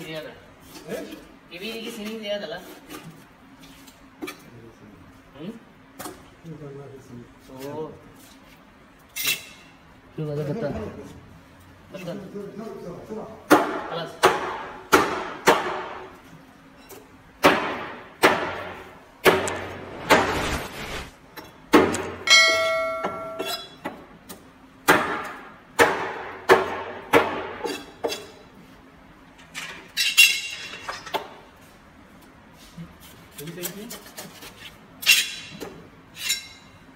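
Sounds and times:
knife chopping on cutting board: 0:17.4 - 0:20.2
brief metallic ring: 0:22.3 - 0:23.8.

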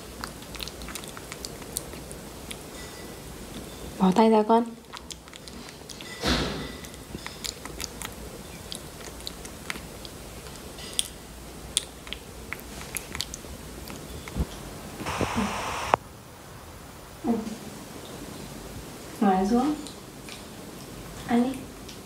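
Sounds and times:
monkey chewing on plastic spoon: 0:00.0 - 0:04.0, 0:04.8 - 0:14.6.

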